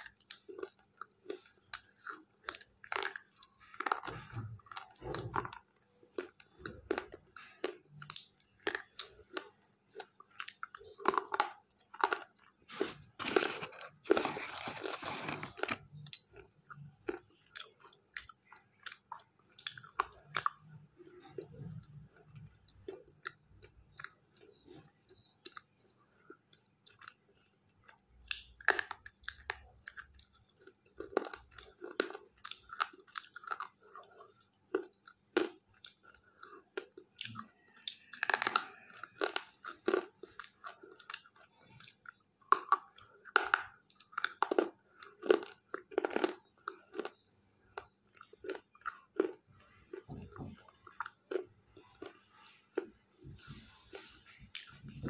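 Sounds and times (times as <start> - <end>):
slate pencil crunching: 12.1 - 15.9.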